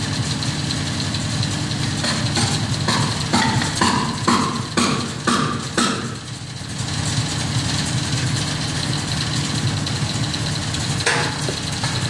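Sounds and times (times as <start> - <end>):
engine idling: 0.0 - 12.0
sharp knocks: 2.0 - 6.2, 11.0 - 12.0.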